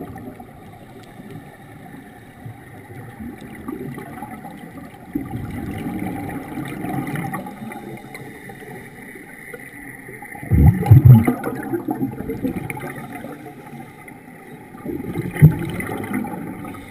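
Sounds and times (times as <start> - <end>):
faint steady hum: 0.0 - 16.9
low wash of water: 0.0 - 16.9
regulator bubbles rumbling: 2.5 - 8.2, 10.2 - 13.8, 14.7 - 16.9.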